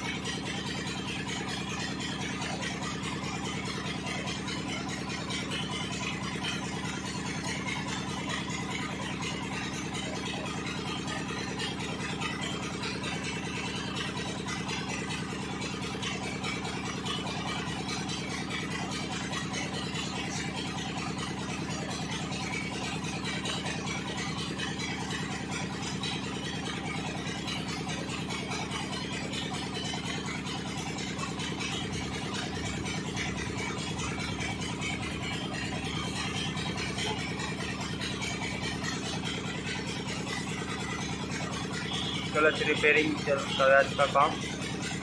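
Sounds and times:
engine idling: 0.0 - 45.0.

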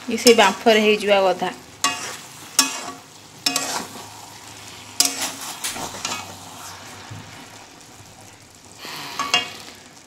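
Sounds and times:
faint steady sizzle: 0.0 - 10.0
metal spatula scraping a pan: 1.8 - 7.1, 8.8 - 9.8.

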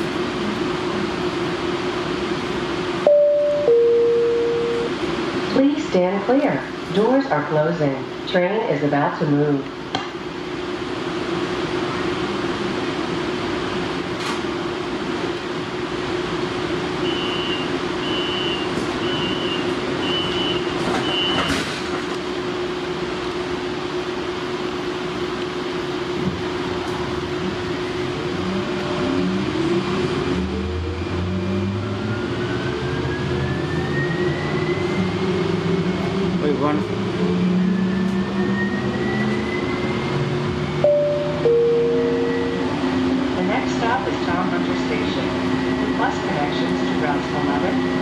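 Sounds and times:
train electrical hum: 0.0 - 48.0
short high beeps: 3.1 - 4.9
traction motor whine: 27.6 - 40.8.

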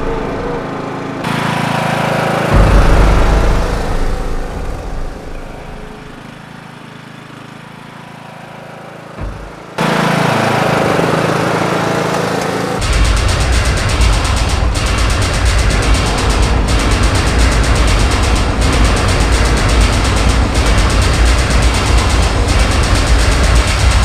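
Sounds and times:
lawn mower engine running: 0.0 - 24.0
short thump: 9.2 - 9.8.

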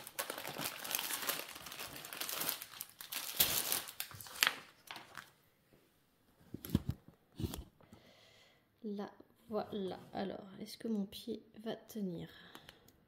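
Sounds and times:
plastic sheet crinkling: 0.0 - 5.4.

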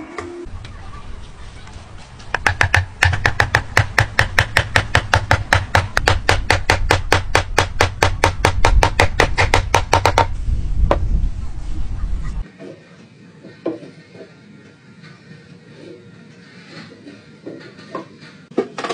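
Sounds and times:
hammer striking wooden joint: 2.3 - 10.3.

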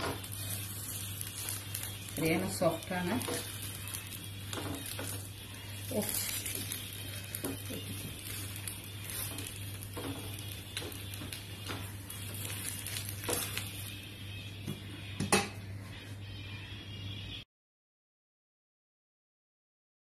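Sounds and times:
light sizzle: 0.0 - 15.1.

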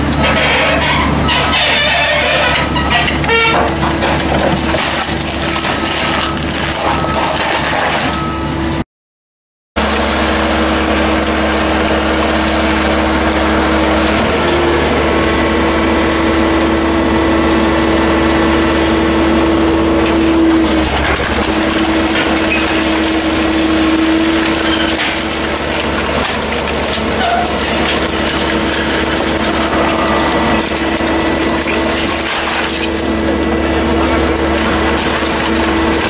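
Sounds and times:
hydraulic power unit droning: 9.8 - 36.0
pump whine: 9.8 - 36.0.

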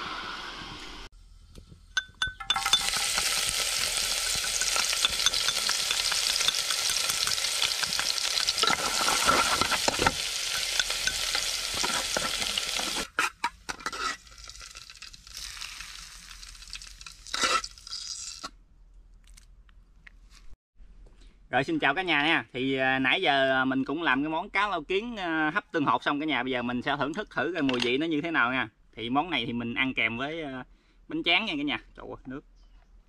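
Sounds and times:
scallions sizzling in hot oil: 2.5 - 13.2, 13.8 - 18.5.

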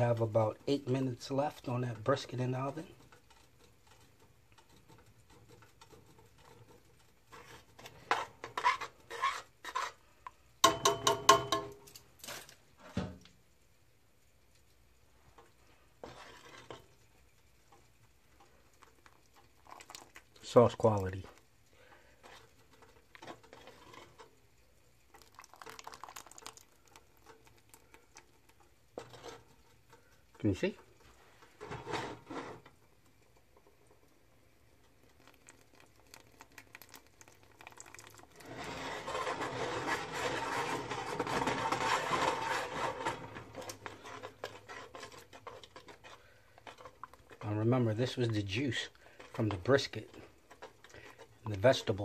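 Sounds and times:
thick sauce simmering: 0.0 - 10.6, 13.4 - 52.0
whisk stirring in a metal pot: 0.0 - 11.7, 15.3 - 52.0
knocks on pot: 10.6 - 11.8
whisk clinking against pot: 10.6 - 11.8.

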